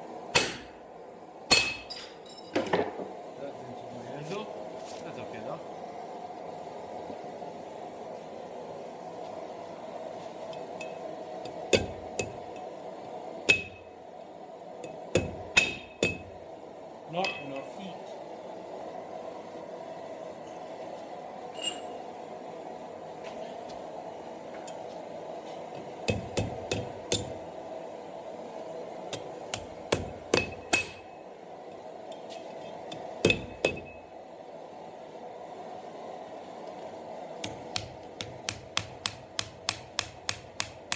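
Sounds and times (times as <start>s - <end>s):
hammer striking metal: 0.3s - 0.7s, 1.5s - 2.8s, 13.5s - 13.8s, 14.8s - 16.3s, 26.1s - 27.3s, 29.5s - 31.1s, 33.2s - 34.0s, 37.4s - 40.9s
high metallic ring: 21.5s - 22.0s.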